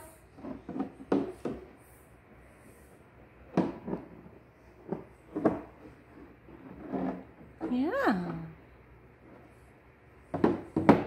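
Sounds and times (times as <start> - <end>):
knocks on plastic step stool: 10.3 - 11.0.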